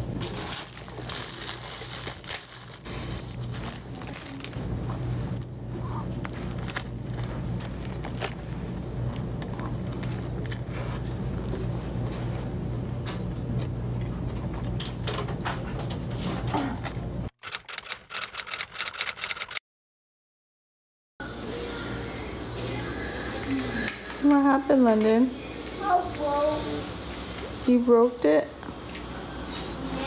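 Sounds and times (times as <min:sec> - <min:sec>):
plastic bag crinkling: 0:00.2 - 0:04.6, 0:06.2 - 0:11.0
person chewing a sandwich: 0:05.7 - 0:14.9.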